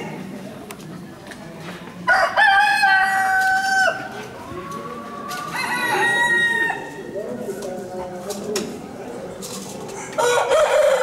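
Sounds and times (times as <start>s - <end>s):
rooster crowing: 2.1s - 4.0s, 5.4s - 7.0s, 10.2s - 11.0s.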